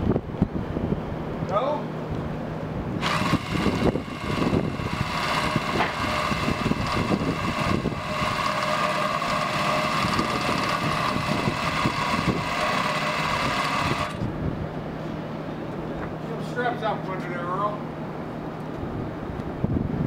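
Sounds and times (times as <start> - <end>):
electric drill whining under load: 3.0 - 14.2.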